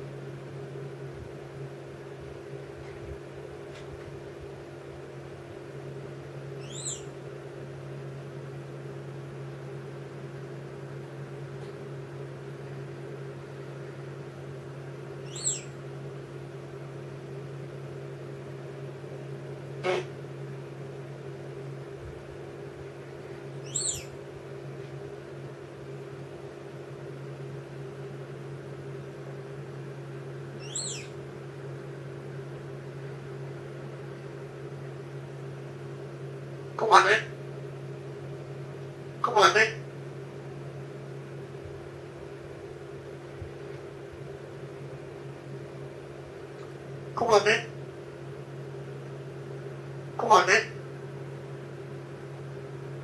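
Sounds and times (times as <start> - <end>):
steady low hum: 0.0 - 53.0
parrot chirping: 6.6 - 7.1, 15.3 - 15.8, 23.6 - 24.1, 30.6 - 31.2.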